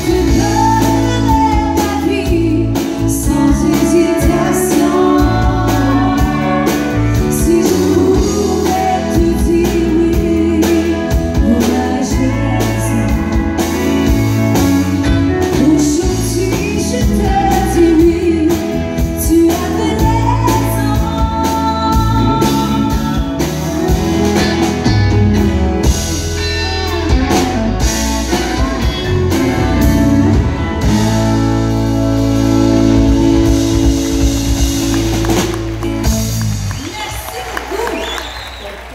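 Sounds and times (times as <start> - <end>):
woman singing: 0.0 - 23.6
bass: 0.0 - 38.9
drums: 0.0 - 38.9.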